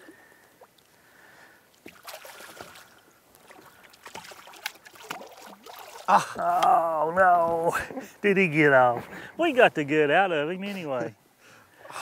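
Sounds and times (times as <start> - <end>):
water splashing beside boat: 0.0 - 6.8.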